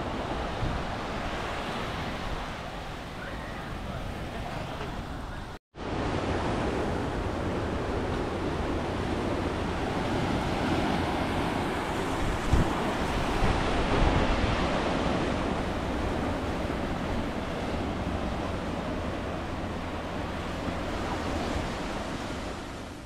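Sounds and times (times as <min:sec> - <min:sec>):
ocean surf breaking: 0:00.0 - 0:23.0
wind on microphone: 0:00.0 - 0:23.0.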